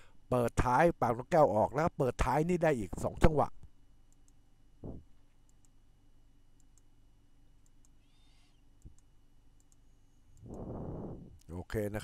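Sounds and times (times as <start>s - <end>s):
low electrical hum: 0.0s - 12.0s
faint clicks: 7.6s - 10.7s.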